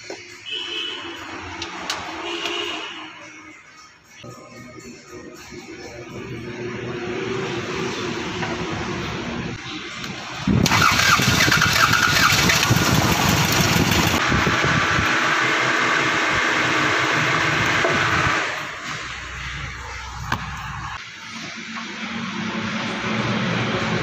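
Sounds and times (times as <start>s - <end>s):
engine cranking by starter motor: 10.5s - 18.5s.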